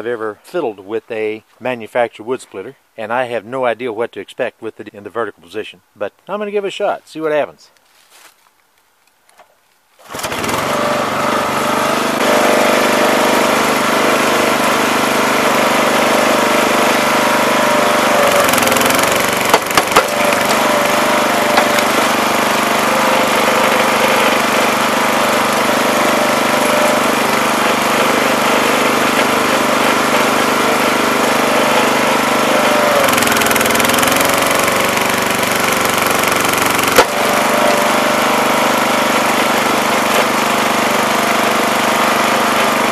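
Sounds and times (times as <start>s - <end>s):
small engine running: 10.0s - 42.9s
wood cracking: 18.3s - 20.8s, 21.4s - 22.2s.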